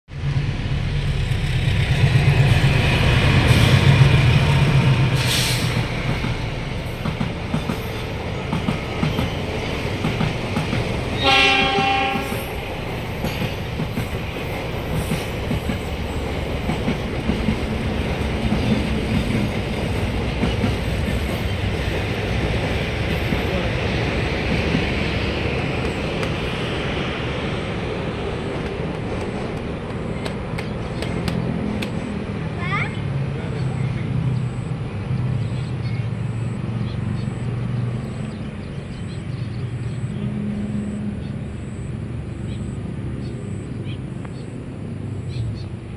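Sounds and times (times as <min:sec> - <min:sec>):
train wheels rumbling on rails: 0:00.1 - 0:41.6
train horn blast: 0:11.2 - 0:12.6.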